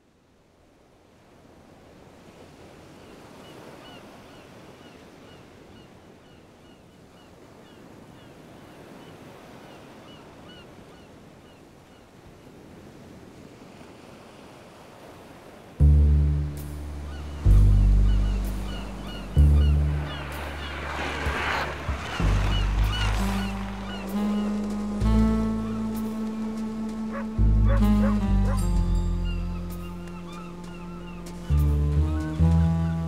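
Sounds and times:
wind: 0.0 - 33.0
rough water washing: 14.2 - 32.8.

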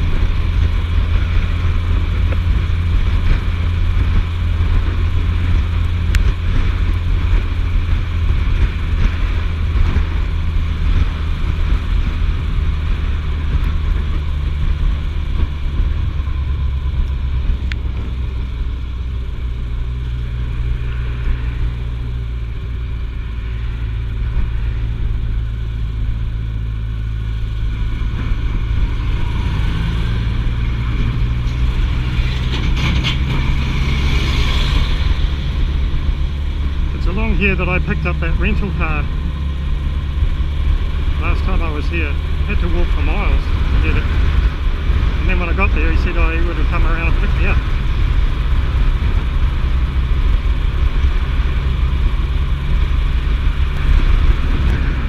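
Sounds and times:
motorcycle engine running: 0.0 - 55.0
road noise: 0.0 - 55.0
wind noise: 0.0 - 55.0.

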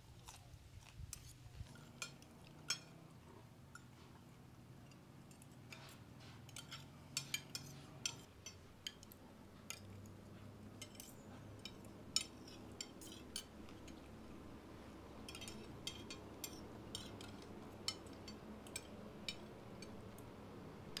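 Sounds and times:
cutlery clinking on ceramic plates: 5.3 - 14.1, 15.2 - 20.0.

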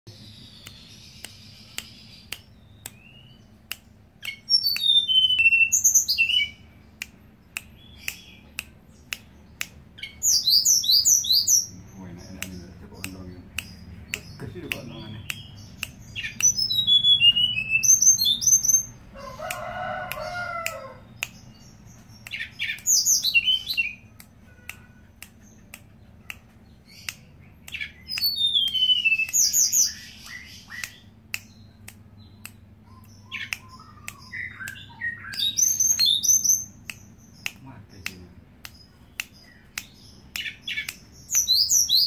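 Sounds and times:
sharp bird ticks: 0.1 - 42.0
bird singing whistled phrases: 4.3 - 6.6, 10.0 - 11.8, 15.2 - 18.9, 22.4 - 24.0, 27.8 - 31.1, 32.9 - 36.8, 40.4 - 42.0
lower-pitched bird call: 32.8 - 36.7.

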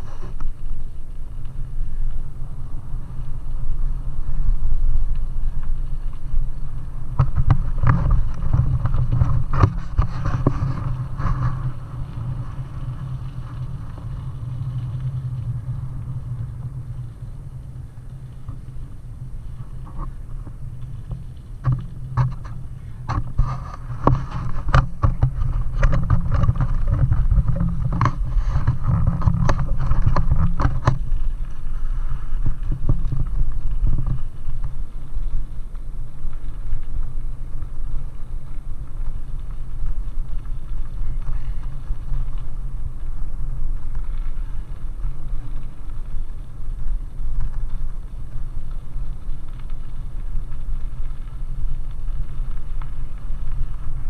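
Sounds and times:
bike tyres rolling on gravel: 0.0 - 54.0
wind on microphone: 0.0 - 54.0
sharp clicks and rattles: 3.0 - 37.9.

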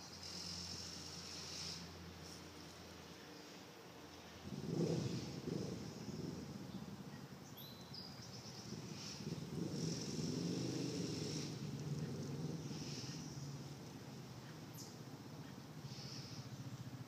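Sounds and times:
high insect-like buzz: 0.0 - 2.4.

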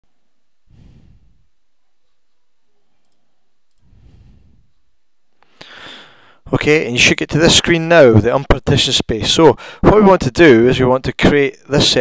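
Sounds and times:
soft rushes of noise: 0.7 - 1.6, 3.8 - 4.8.

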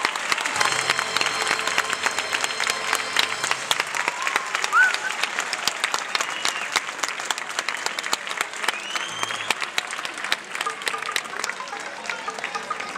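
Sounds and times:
crowd applauding: 0.0 - 12.9.

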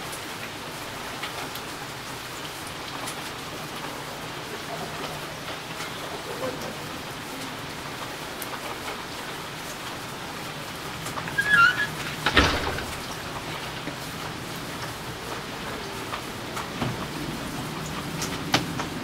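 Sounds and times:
rain falling on wet road: 0.0 - 19.0
squeaky chirp: 11.3 - 12.0.

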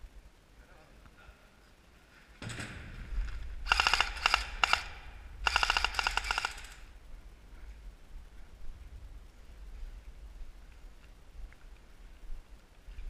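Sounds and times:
airsoft gun firing bursts: 3.6 - 6.9.

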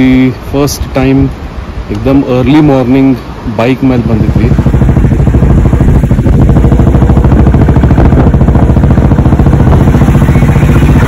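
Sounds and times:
vehicle engine running: 3.6 - 11.0.

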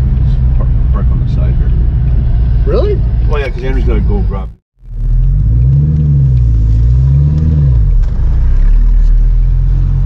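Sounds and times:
car engine droning inside cabin: 0.0 - 10.0.

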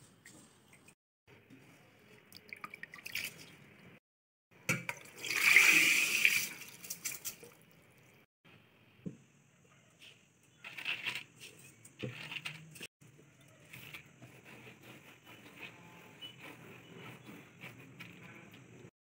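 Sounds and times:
water poured through colander: 5.0 - 7.6.

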